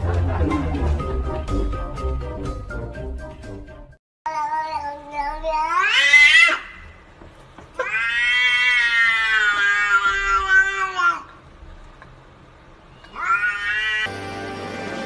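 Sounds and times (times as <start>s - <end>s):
cat yowling: 5.6s - 6.8s, 7.8s - 11.3s, 13.0s - 14.1s.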